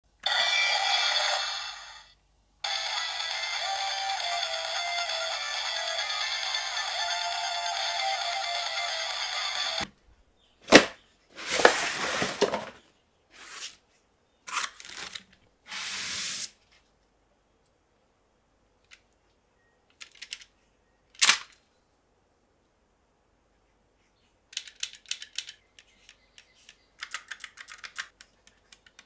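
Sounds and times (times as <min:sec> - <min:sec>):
plastic packaging crinkling: 0:14.5 - 0:15.3
plastic toy parts clicking: 0:19.9 - 0:20.5, 0:24.5 - 0:29.0.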